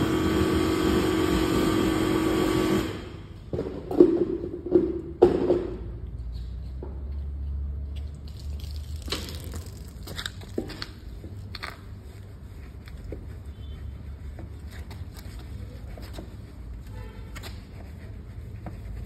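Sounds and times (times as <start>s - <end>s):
soapy crackling and squelches: 8.0s - 19.0s.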